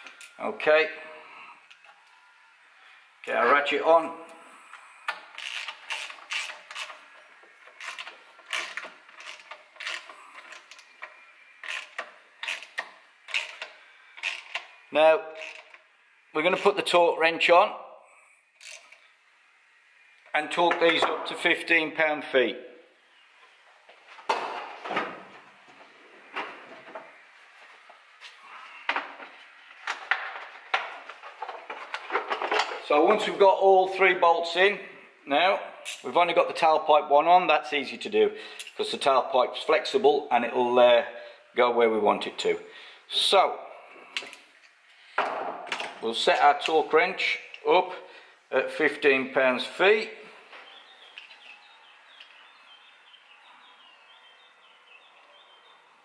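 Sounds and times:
socket ratchet clicking: 7.7s - 14.7s.

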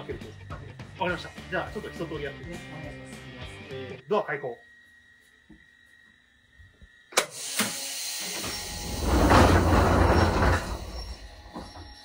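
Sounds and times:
hiss of air: 7.2s - 10.4s
train doors sliding open: 7.2s - 12.0s.

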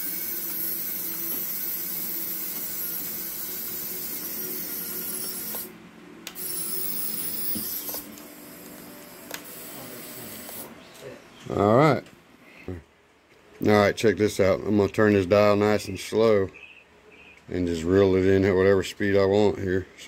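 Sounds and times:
small electric motors whirring: 0.0s - 5.7s, 6.3s - 10.7s.

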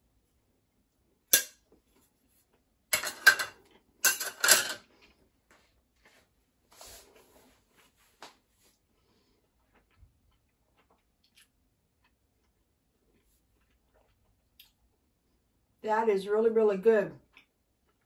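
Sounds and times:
cutlery clattering against dishes: 2.9s - 4.8s.

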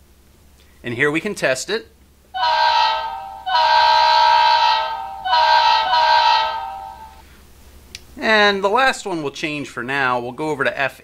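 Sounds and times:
model train horn blasts: 2.4s - 7.3s.

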